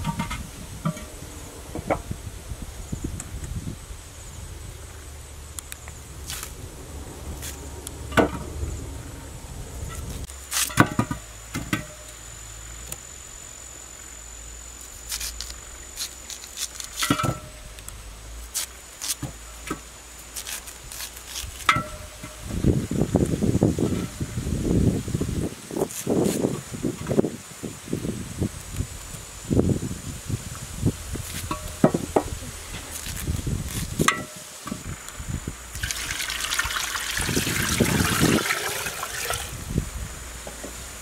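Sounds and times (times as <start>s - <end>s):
insect trilling: 3.8s - 23.8s, 31.2s - 39.6s.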